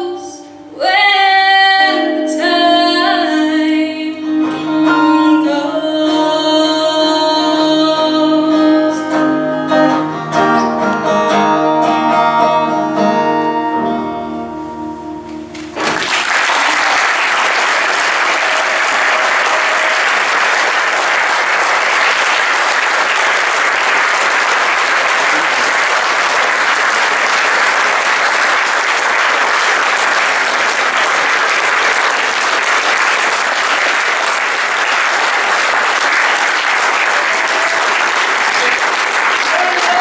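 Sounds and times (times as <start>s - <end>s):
audience applause: 15.6s - 40.0s.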